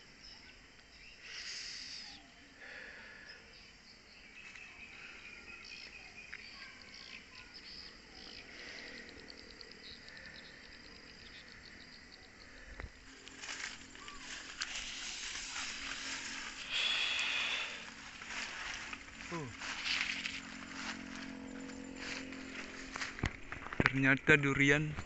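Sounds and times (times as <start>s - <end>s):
insect chirps: 0.0s - 25.0s
insects trilling: 0.0s - 25.0s.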